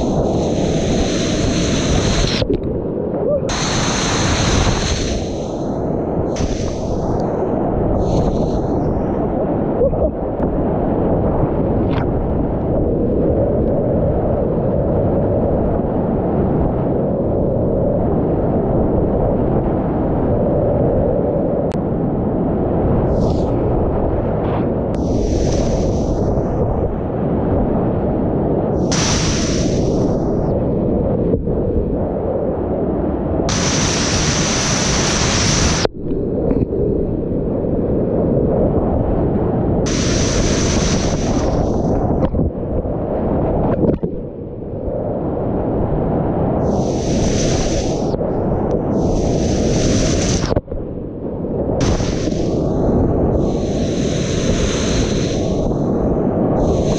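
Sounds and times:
short high-pitched hiss: 28.8 - 30.0.

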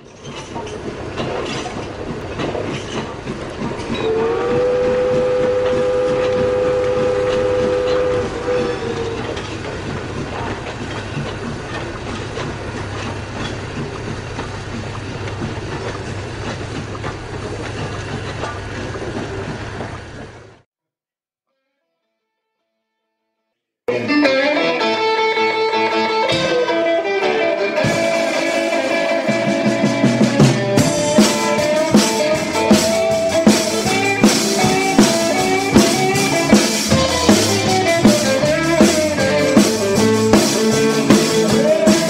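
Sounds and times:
train rumbling and clattering on rails: 0.0 - 20.6, 27.8 - 42.0
train whistle long note: 4.0 - 9.4.

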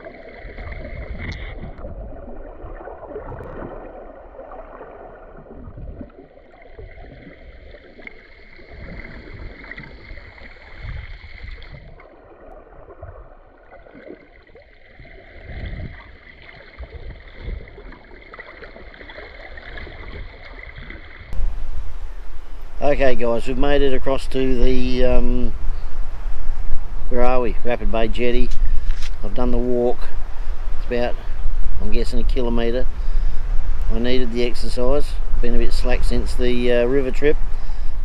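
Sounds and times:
low underwater thuds: 0.0 - 22.8
underwater water sloshing: 0.0 - 38.0
open-air noise: 21.3 - 38.0
faint high hum: 21.4 - 38.0.

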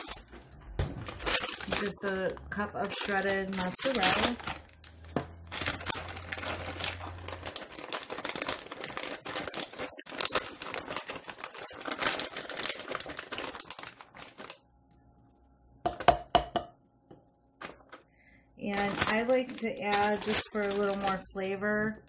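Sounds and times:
plastic bag crinkling: 0.0 - 14.8, 17.6 - 22.0
plastic cup knocking on saucepan: 15.8 - 16.8.

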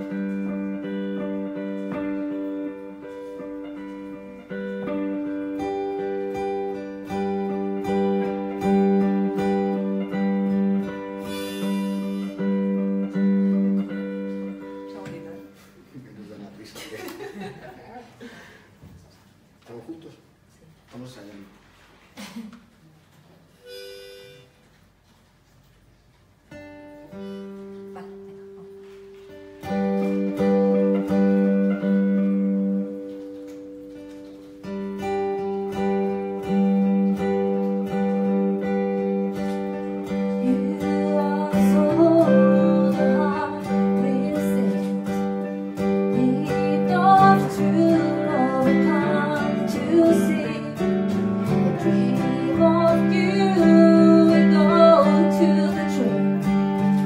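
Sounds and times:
guitars strumming chords: 0.0 - 15.8, 26.5 - 57.0
woman singing: 40.2 - 56.5.

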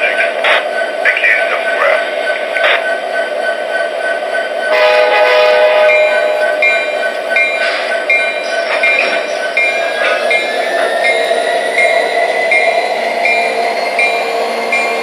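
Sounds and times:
model locomotive diesel drone: 0.0 - 15.0
locomotive bell ringing: 4.6 - 15.0
locomotive horn: 4.7 - 6.4.

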